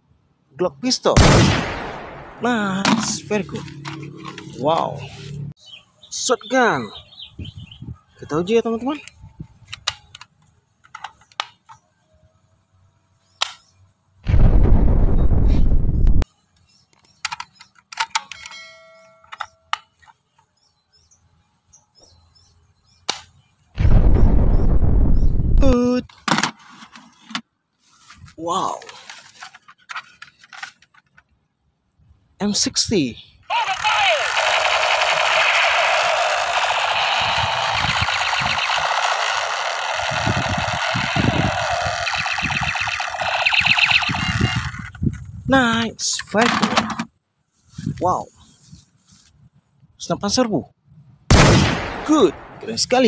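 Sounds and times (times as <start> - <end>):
low thumps: 14.2 - 16.2, 23.8 - 25.7
ringing bell chime: 18.4 - 19.7
toy gun machine-gun rattle: 33.7 - 44.9
faint bird chirps: 42.1 - 44.6.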